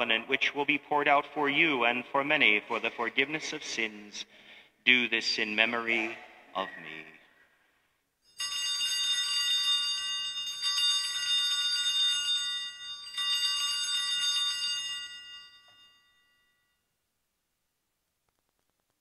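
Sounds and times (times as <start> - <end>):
small altar bells ringing: 8.2 - 16.9.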